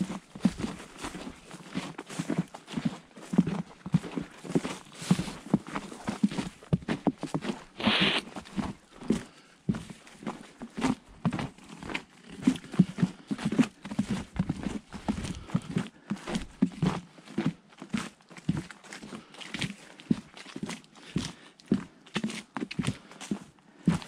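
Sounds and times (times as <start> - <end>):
boots crunching through snow: 0.0 - 16.4.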